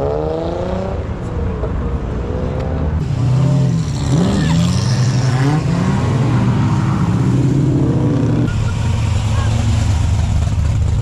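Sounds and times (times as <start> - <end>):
car engine revving: 2.2 - 11.0.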